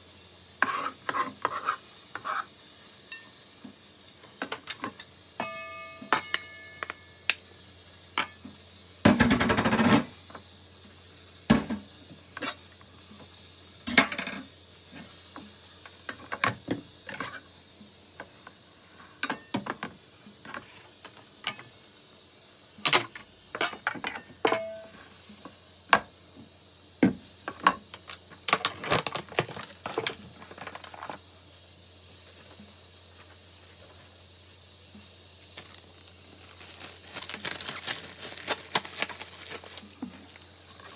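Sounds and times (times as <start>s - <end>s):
utensil scraping a bowl: 0.6s - 2.5s.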